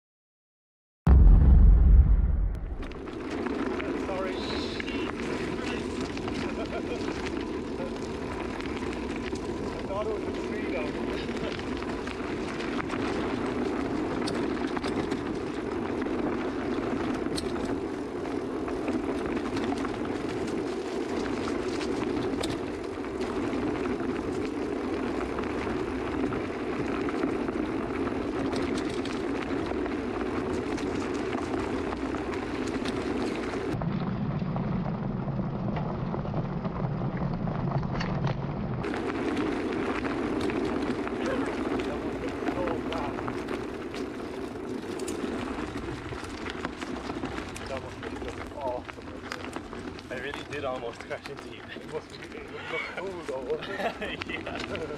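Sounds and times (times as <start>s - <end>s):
wind rushing: 1.1s - 3.3s
tyres rolling over dirt trail: 2.7s - 54.9s.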